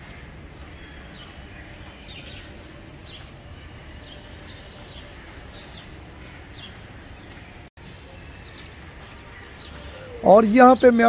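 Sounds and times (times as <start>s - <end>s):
small bird chirping: 8.1s - 11.0s.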